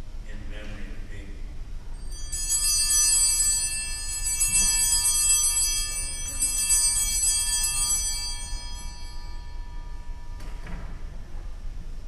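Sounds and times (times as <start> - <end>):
small bells jangling: 2.0 - 10.4.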